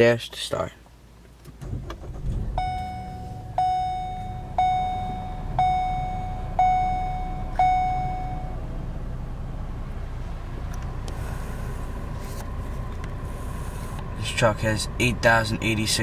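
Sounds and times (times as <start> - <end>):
car engine idling: 1.1 - 16.0
dashboard warning chime: 2.5 - 8.6.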